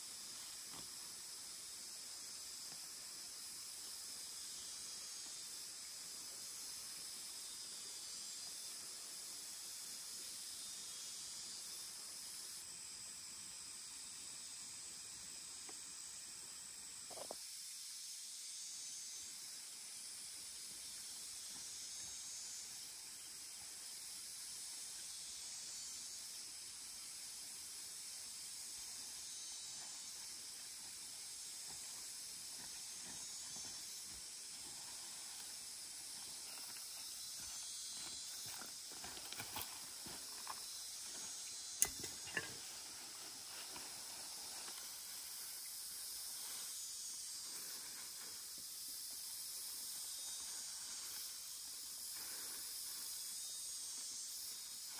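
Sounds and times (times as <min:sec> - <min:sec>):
high hiss of outdoor ambience: 0:00.0 - 0:54.9.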